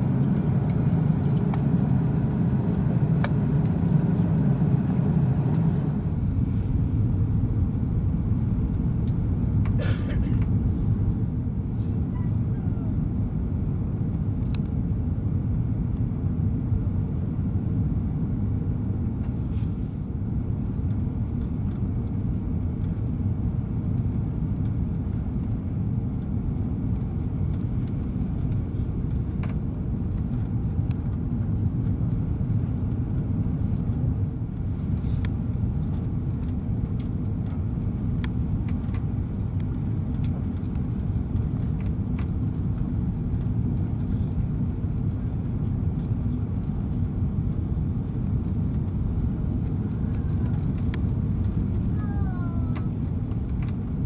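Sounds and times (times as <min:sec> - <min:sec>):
airliner cabin engine rumble: 0:00.0 - 0:54.0.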